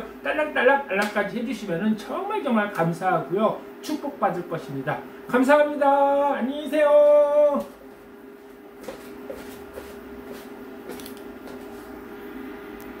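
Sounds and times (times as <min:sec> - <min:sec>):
cooker hum: 0:00.0 - 0:13.0.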